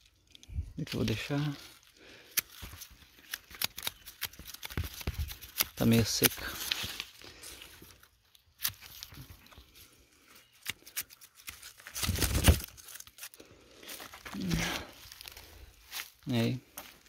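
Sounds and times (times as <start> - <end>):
dry leaf crackling and tearing: 0.0 - 17.0
pruning shears snipping: 2.3 - 7.0, 10.5 - 13.0.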